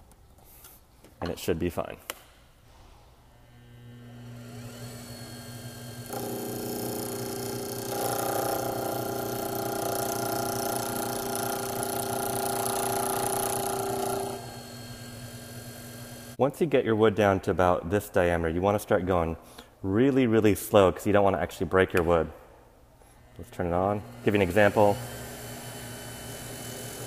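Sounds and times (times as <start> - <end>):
lathe motor humming: 3.6 - 16.4, 23.7 - 27.0
tool scraping spinning wood: 4.6 - 16.4.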